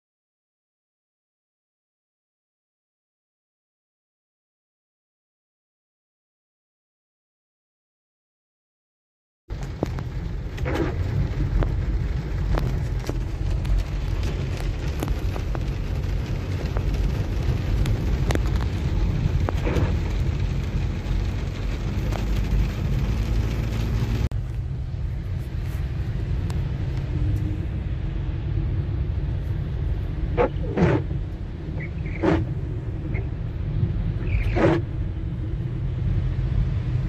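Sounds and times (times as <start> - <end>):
heavy rain on car windshield: 9.5 - 37.0
moving car rumble: 9.5 - 37.0.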